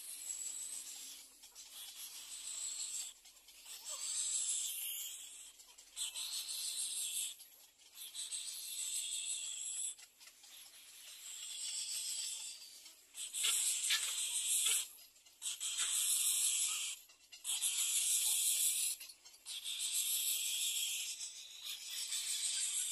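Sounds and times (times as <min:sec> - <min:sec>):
insects buzzing shrilly: 0:13.2 - 0:17.0.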